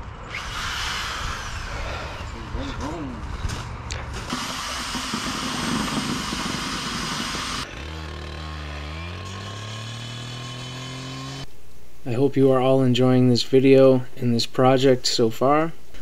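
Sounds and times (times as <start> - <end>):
cut-off saw running: 0.3 - 2.3, 4.2 - 11.5.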